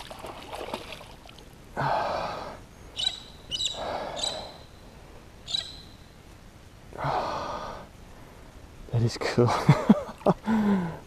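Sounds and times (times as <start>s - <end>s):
man breathing out hard: 1.8s - 2.6s, 10.4s - 11.0s.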